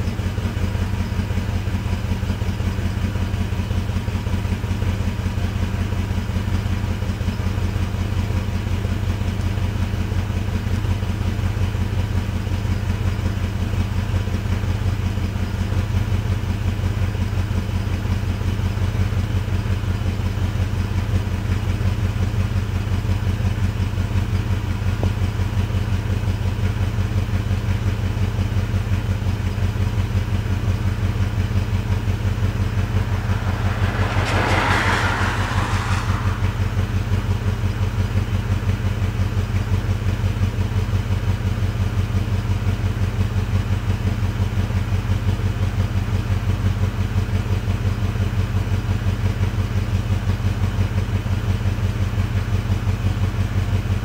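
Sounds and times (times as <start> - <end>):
car engine idling: 29.3 - 42.8
hissing rush: 32.1 - 38.2.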